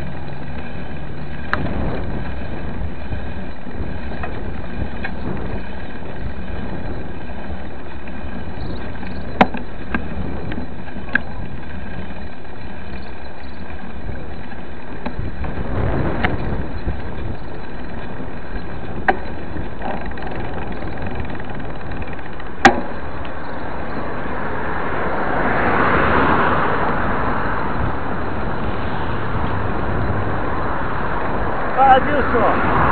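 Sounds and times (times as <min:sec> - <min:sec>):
street traffic: 0:00.0 - 0:32.9
vehicle passing: 0:00.0 - 0:32.9.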